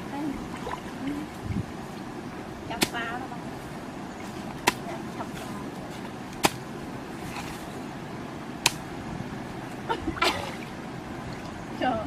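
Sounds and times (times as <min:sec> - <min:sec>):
steady background hiss: 0:00.0 - 0:12.0
digging tool chopping into mud: 0:06.4 - 0:06.6.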